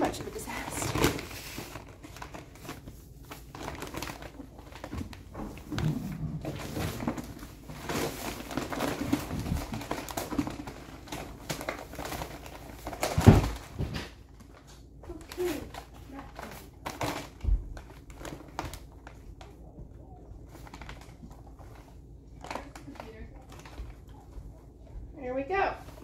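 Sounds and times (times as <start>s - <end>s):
paper bag rustling: 0.0s - 26.0s.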